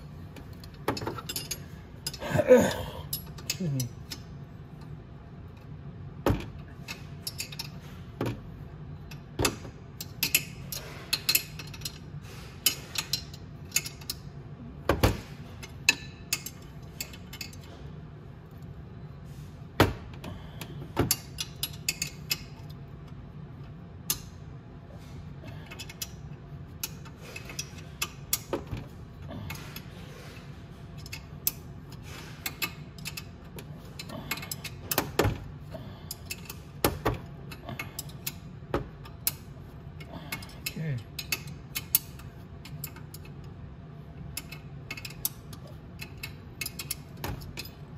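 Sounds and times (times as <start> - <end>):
low steady hum: 0.0 - 47.9
wrench clicking on metal bolt: 40.3 - 43.3, 44.3 - 47.8.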